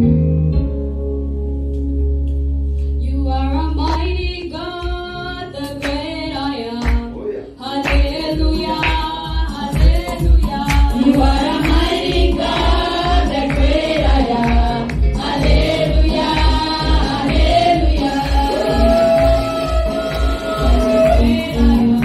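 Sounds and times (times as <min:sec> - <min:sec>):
voices singing together: 0:04.6 - 0:22.0.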